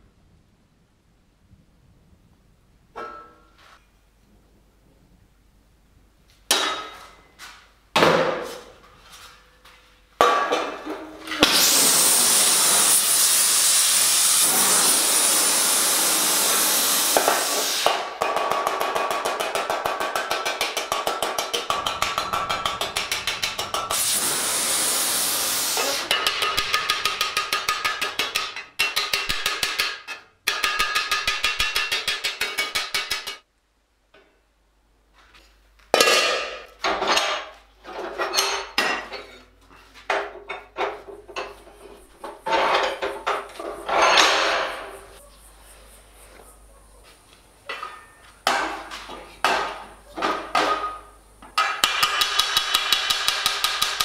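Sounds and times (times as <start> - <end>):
hammer striking sheet metal: 6.5 - 7.1, 17.1 - 33.4, 51.6 - 54.0
power tool hissing: 11.4 - 17.9, 21.7 - 26.9.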